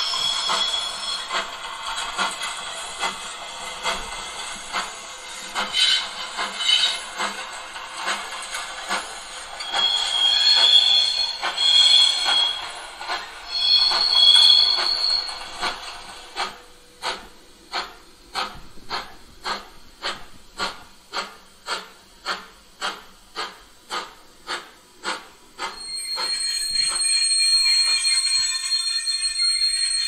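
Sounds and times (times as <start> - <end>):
high squeal: 0.0 - 1.5, 9.6 - 15.7, 25.8 - 30.0.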